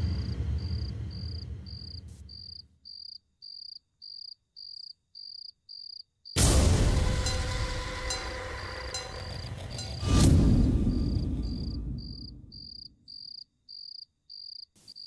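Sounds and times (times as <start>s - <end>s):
sudden loud hit: 0.0s - 2.1s, 6.4s - 12.6s
cricket chirping: 0.0s - 6.4s, 7.0s - 15.0s
low music: 6.4s - 12.0s.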